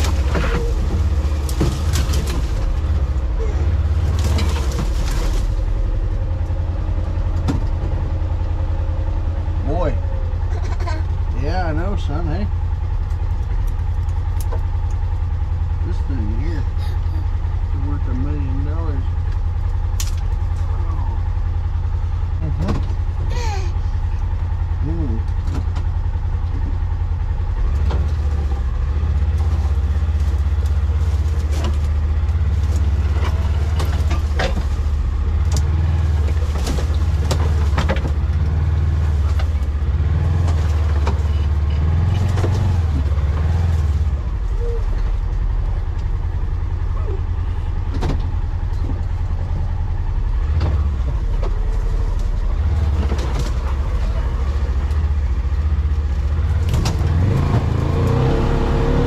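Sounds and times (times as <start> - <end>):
knocks and rattles: 0.0 - 6.6, 27.6 - 44.2
vehicle engine running: 0.0 - 59.0.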